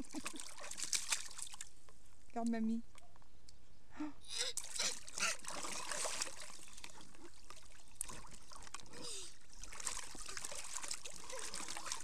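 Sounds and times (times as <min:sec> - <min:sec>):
water splashing in paddling pool: 0:00.0 - 0:01.8, 0:04.5 - 0:12.0.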